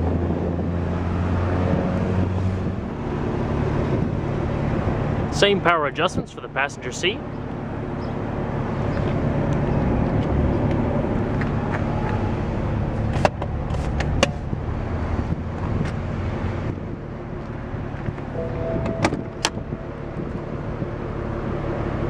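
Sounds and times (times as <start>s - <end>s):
car engine idling: 16.7s - 22.0s.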